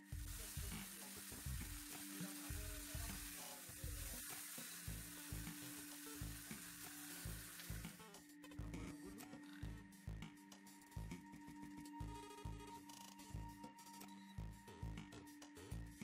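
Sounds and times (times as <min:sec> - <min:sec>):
chicken sizzling in oil: 0:00.0 - 0:08.1.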